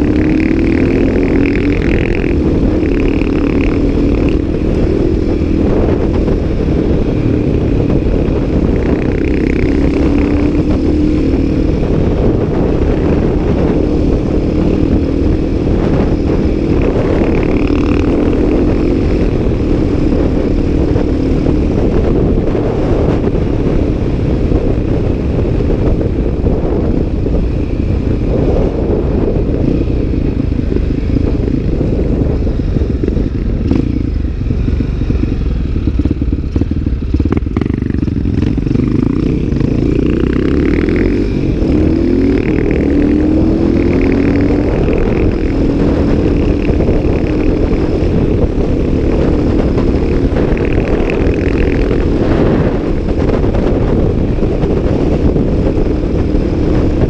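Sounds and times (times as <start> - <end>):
motorcycle engine running: 0.0 - 57.0
wind rush on microphone: 0.0 - 57.0.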